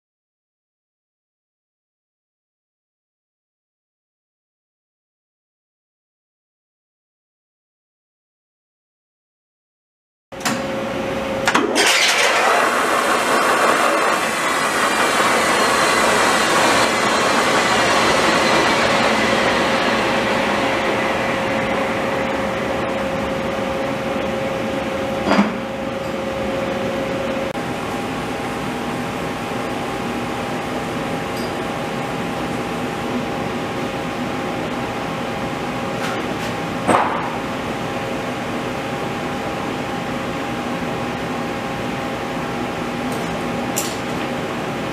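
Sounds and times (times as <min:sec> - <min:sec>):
lathe machine whine: 0:10.9 - 0:35.8.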